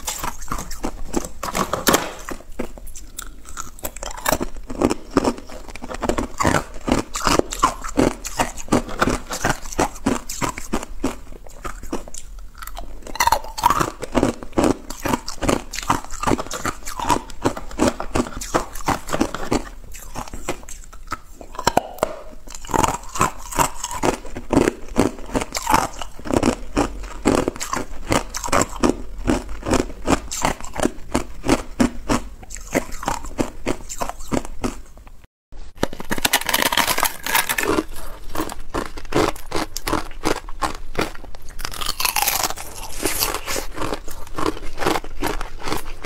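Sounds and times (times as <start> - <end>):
ice cubes being chewed: 0.0 - 34.9, 35.8 - 46.0
thin ice sheet crunching: 35.8 - 38.1.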